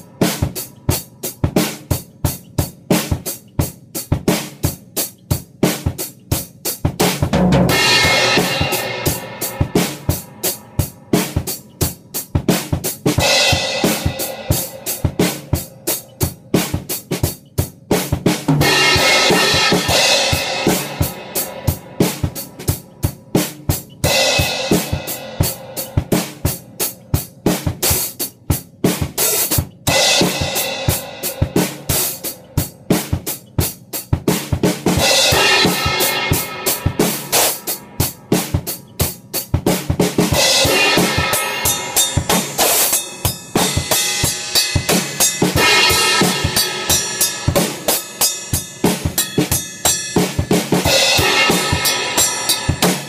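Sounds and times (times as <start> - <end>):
drum kit funk groove: 0.0 - 53.0
cymbal crashes: 7.6 - 10.8, 18.6 - 22.6, 35.0 - 38.2, 40.4 - 53.0.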